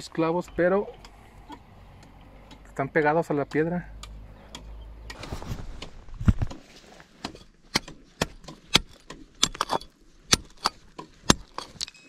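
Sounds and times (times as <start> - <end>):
rustling handling noise: 5.1 - 8.7
metal tool striking rock: 7.2 - 12.0.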